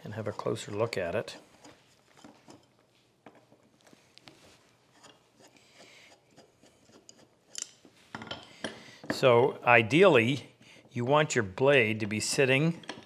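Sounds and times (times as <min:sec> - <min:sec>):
screwdriver clicking and scraping: 0:04.9 - 0:07.9.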